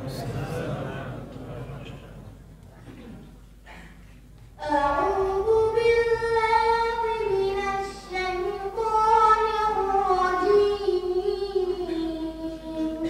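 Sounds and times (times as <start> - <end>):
boy chanting into a microphone: 4.6 - 13.0.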